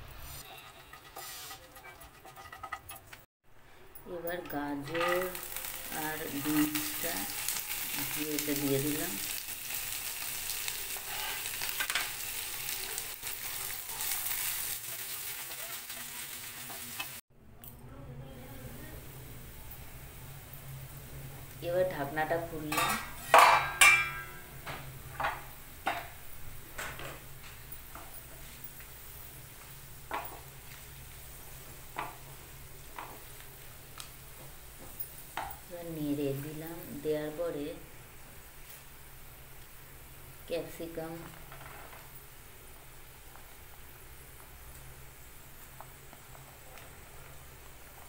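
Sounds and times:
vegetables sizzling in a frying pan: 0.0 - 3.3, 4.7 - 17.2, 18.6 - 48.0
wooden spatula scraping a pan: 0.1 - 3.3, 10.9 - 12.2.

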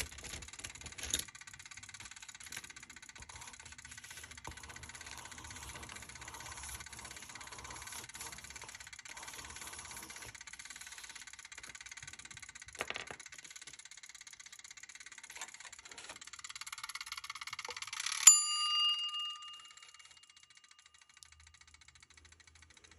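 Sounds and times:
bell-like ding: 18.2 - 20.4.

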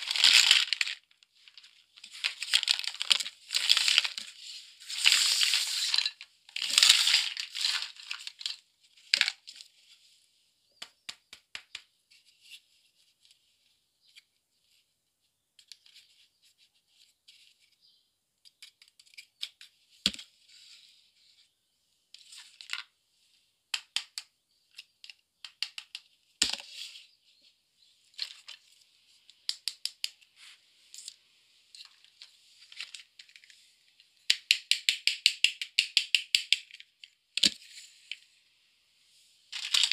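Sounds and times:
plastic toys clicking and tapping: 0.0 - 4.4, 23.7 - 26.6, 29.3 - 30.2, 34.3 - 37.6, 39.6 - 39.9.

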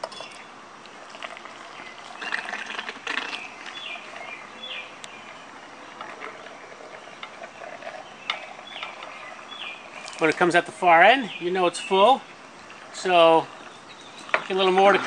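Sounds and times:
birds chirping: 0.0 - 15.0
water pouring and gurgling: 0.8 - 4.5, 5.2 - 10.4.

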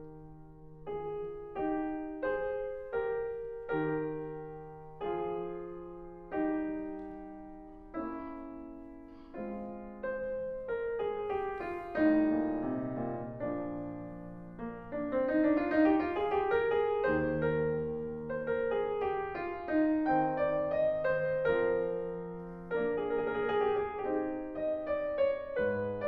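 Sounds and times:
piano music: 0.0 - 26.0.

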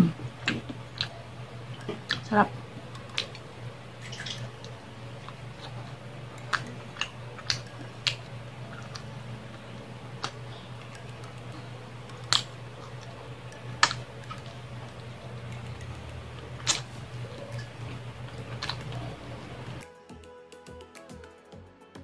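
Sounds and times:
steady low hum: 0.0 - 19.8
chewing with wet mouth clicks: 0.4 - 19.8.

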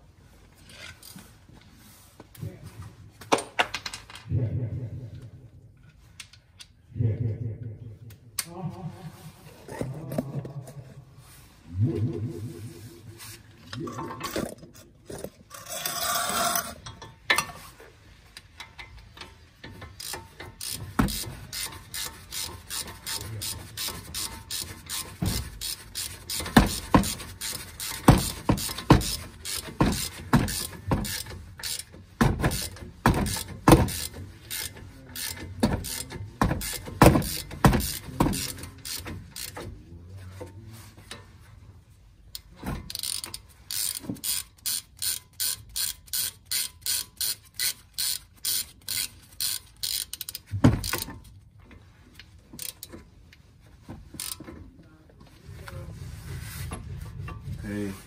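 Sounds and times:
socket ratchet clicking: 42.4 - 51.1.

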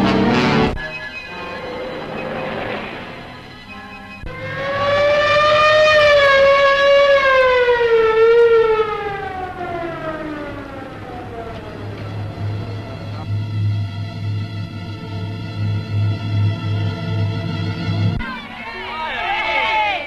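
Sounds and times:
siren wailing: 0.7 - 13.4.

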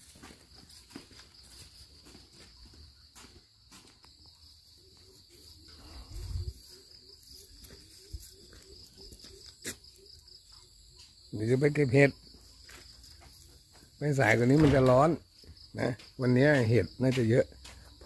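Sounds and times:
footsteps: 0.0 - 18.0
insects trilling: 0.0 - 18.0.

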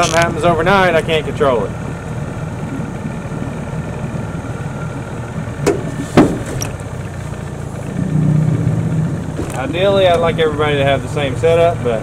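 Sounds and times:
small boat motor running: 0.0 - 12.0
sharp knocks: 5.6 - 6.8.

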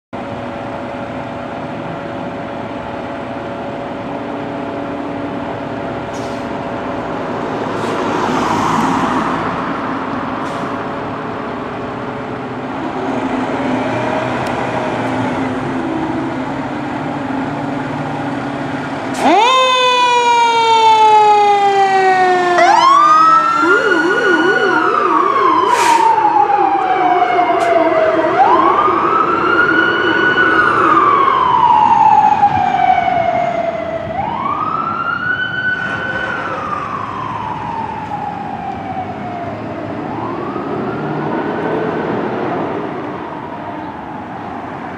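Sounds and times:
fast low siren warble: 19.2 - 44.4
siren wailing: 19.2 - 44.4.

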